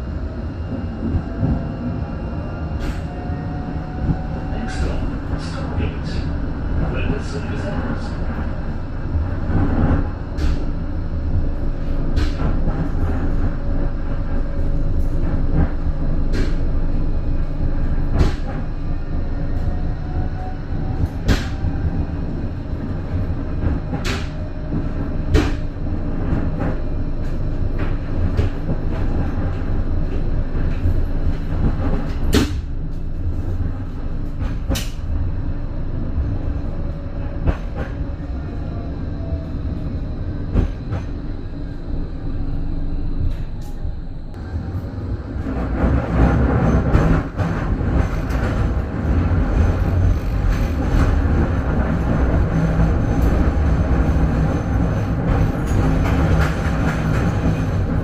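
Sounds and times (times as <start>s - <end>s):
tram rumble: 0.0s - 58.0s
sharp clicks of tram: 9.6s - 10.7s, 12.1s - 13.2s, 15.0s - 16.7s, 18.0s - 18.7s, 21.0s - 21.7s, 23.5s - 33.7s, 34.3s - 35.2s, 37.4s - 38.0s, 45.4s - 58.0s.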